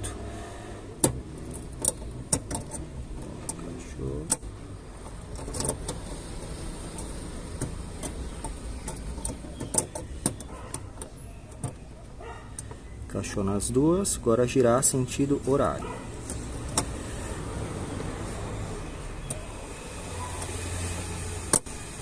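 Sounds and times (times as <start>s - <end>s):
plastic clicks and rattles: 5.0s - 11.9s.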